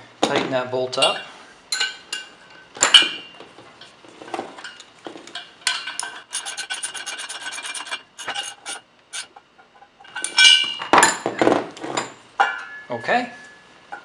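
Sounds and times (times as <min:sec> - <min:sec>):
metal clinks: 0:09.7 - 0:11.3.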